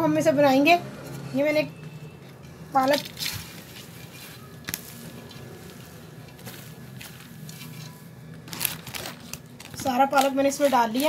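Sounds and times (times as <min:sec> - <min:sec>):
spinach rustling into pot: 0:02.8 - 0:11.0.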